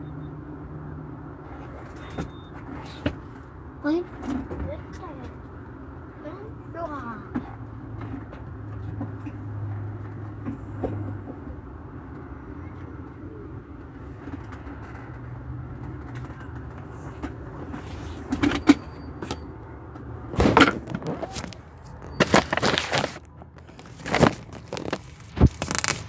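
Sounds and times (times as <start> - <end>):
car rumble inside cabin: 0.0 - 25.8.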